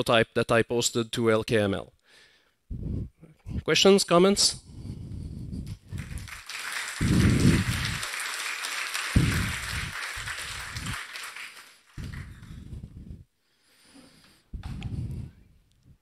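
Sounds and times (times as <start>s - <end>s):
audience applauding: 5.8s - 12.6s.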